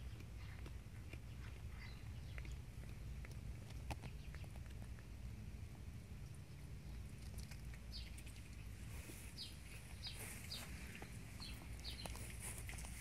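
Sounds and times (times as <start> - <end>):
cat chewing clicks: 0.0 - 5.1
small bird chirping: 0.0 - 5.1, 6.2 - 13.0.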